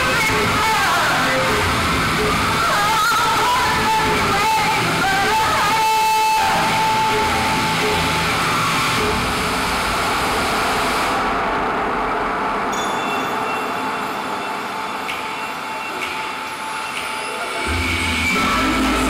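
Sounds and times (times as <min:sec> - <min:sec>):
low rumble: 0:17.7 - 0:19.0.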